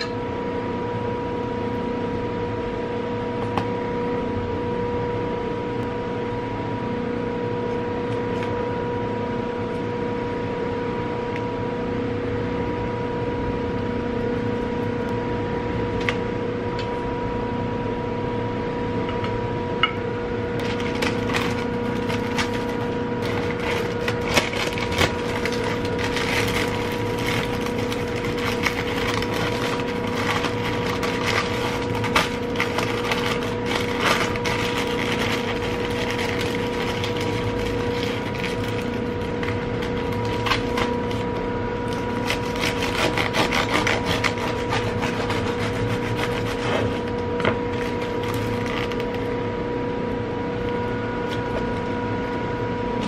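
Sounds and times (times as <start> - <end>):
steady two-tone hum: 0.0 - 53.0
parchment paper crinkling: 20.6 - 49.4.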